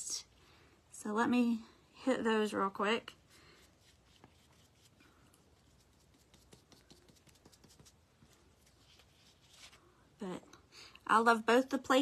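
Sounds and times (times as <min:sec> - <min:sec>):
brush tapping and rustling on paper: 0:03.1 - 0:09.8.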